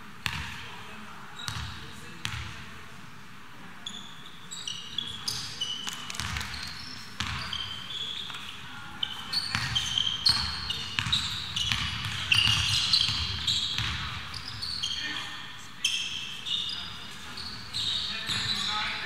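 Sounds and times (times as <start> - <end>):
basketball bouncing on floor: 0.2 - 0.6, 5.9 - 6.6, 9.5 - 14.2
sneaker squeaks: 1.4 - 1.9, 3.8 - 19.0.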